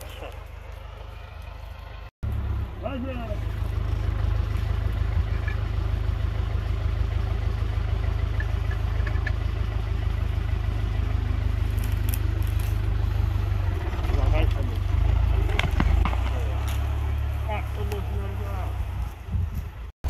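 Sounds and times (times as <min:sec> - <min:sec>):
tractor diesel engine idling: 0:00.0 - 0:19.9.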